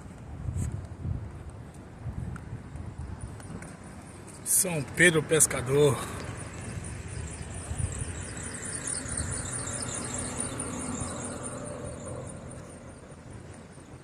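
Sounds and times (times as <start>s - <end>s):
car passing: 3.6s - 14.0s
high quick repeating chirp: 5.7s - 12.9s.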